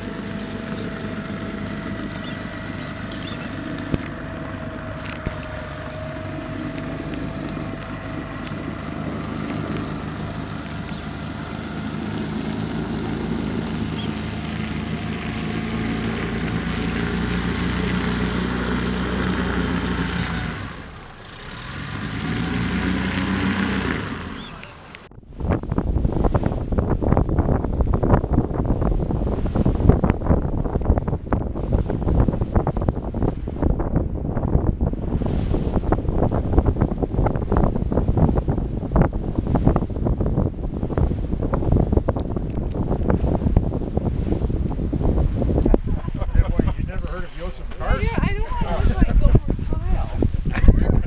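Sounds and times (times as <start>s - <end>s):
boat motor running: 0.0s - 51.0s.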